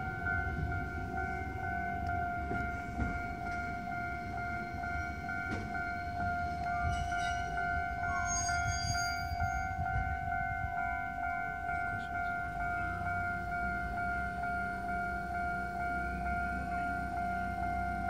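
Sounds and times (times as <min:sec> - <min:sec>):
level crossing warning bell: 0:00.0 - 0:18.0
rumble of trains and traffic: 0:00.0 - 0:18.0.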